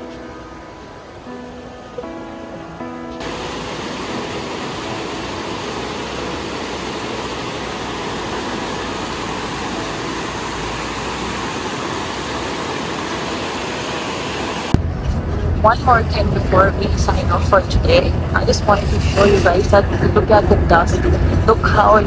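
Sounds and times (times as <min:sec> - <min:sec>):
river rushing over rapids: 0:00.0 - 0:14.8
background music: 0:00.0 - 0:22.0.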